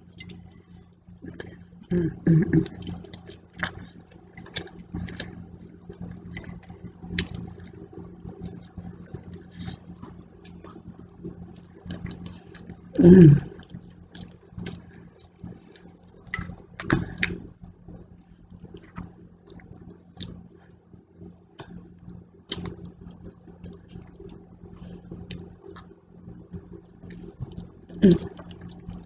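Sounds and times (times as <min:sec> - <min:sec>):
steady low hum: 0:00.0 - 0:29.0
chewing: 0:02.6 - 0:07.8, 0:08.4 - 0:12.8, 0:13.4 - 0:17.4, 0:25.2 - 0:29.0.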